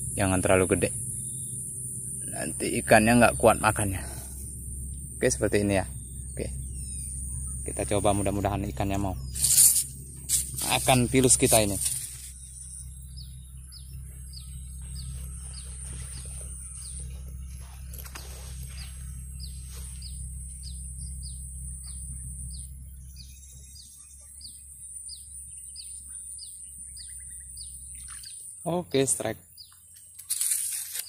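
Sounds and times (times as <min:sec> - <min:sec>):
high-pitched hiss: 0:00.0 - 0:12.9
low rumble: 0:00.0 - 0:23.8
bird chirping: 0:00.0 - 0:31.0.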